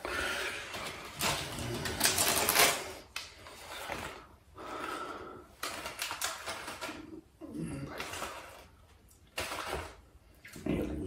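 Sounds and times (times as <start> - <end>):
wrapper crinkling and tearing: 0.6 - 4.1.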